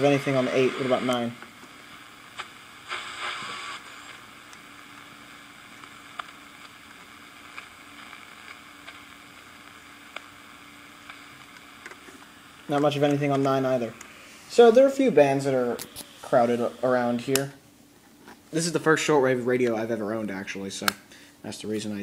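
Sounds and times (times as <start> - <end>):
radio static hiss: 0.0 - 22.0.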